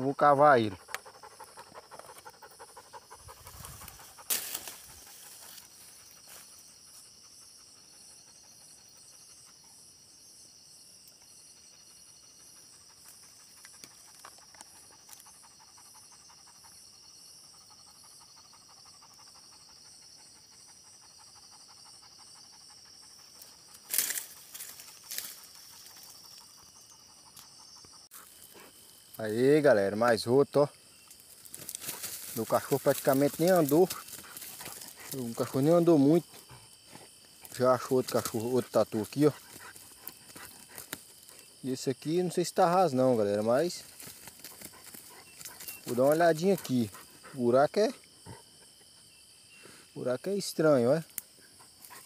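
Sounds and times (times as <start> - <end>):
high-pitched insect trill: 0.0 - 52.0
dog panting: 0.6 - 9.8, 11.6 - 23.8, 31.8 - 41.6, 44.0 - 49.1, 51.5 - 52.0.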